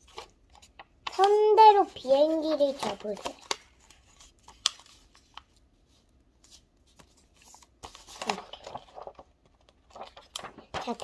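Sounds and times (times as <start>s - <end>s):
paper being folded and creased: 0.0s - 11.0s.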